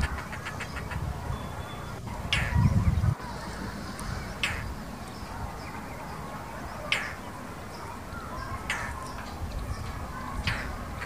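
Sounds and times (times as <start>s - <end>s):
bird giving harsh chack calls: 0.0s - 1.1s, 2.3s - 2.6s, 4.4s - 4.7s.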